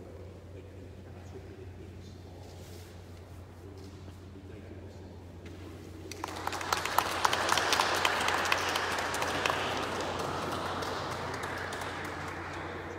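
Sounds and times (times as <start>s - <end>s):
audience applause: 6.1s - 12.9s.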